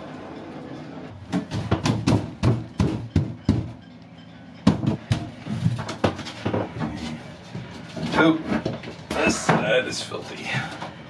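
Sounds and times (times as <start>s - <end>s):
wooden boards knocking: 1.3s - 3.7s, 4.7s - 7.0s.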